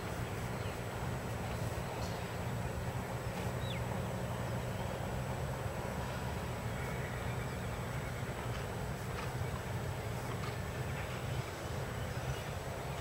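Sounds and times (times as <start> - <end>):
hoofbeats on sand: 5.8 - 13.0.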